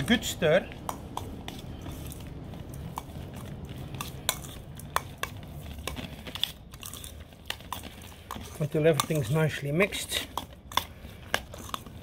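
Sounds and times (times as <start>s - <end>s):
spoon stirring raw meat: 0.0s - 12.0s
spoon clinking against metal bowl: 2.8s - 5.9s, 8.3s - 10.9s.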